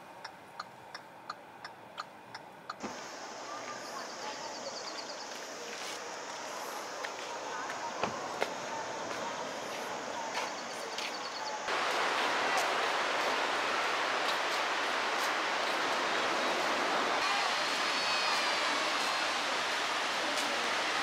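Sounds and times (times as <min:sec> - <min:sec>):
surf washing onto a beach: 0:11.7 - 0:21.0.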